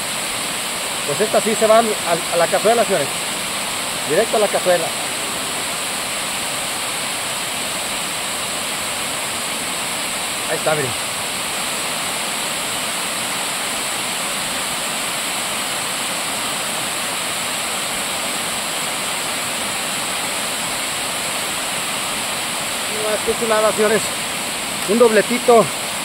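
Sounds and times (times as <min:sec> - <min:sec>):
river water rushing: 0:00.0 - 0:26.0.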